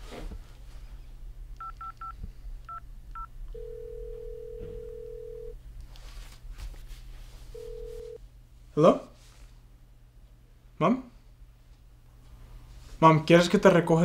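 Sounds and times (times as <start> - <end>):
phone keypad tones: 1.6 - 2.1, 2.7 - 5.5
phone ringback tone: 3.2 - 5.6, 7.6 - 8.2.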